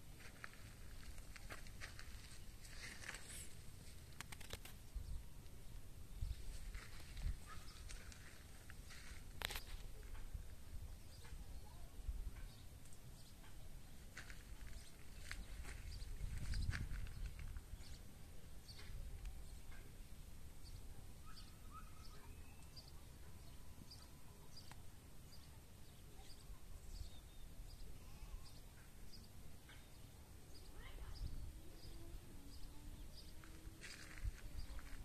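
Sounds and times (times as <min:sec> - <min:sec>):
wind rumbling on microphone: 0:06.0 - 0:08.2, 0:14.6 - 0:18.1
faint bird calls: 0:06.8 - 0:10.3, 0:20.7 - 0:35.0
bird short high chirp: 0:21.2 - 0:23.0.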